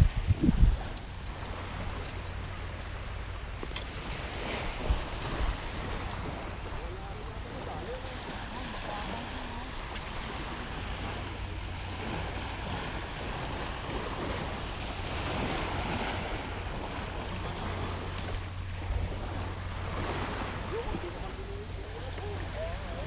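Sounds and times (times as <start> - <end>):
wind noise on microphone: 0.0 - 2.4, 4.0 - 6.5
small waves washing onto sand: 0.0 - 23.0.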